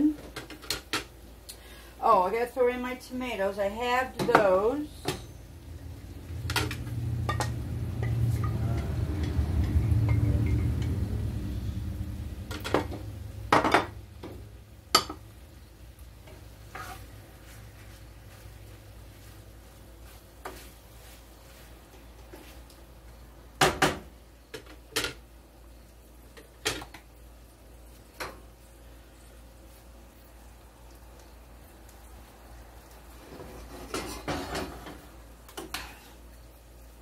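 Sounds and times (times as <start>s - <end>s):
utensils knocking on skillet: 6.4s - 11.0s.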